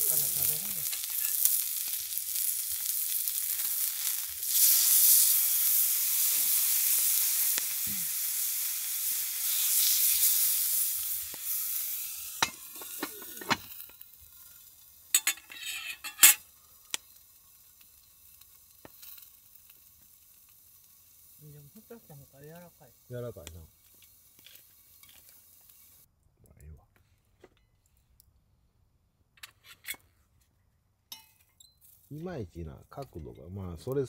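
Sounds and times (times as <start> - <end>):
meat sizzling on an iron griddle: 0.0 - 26.1.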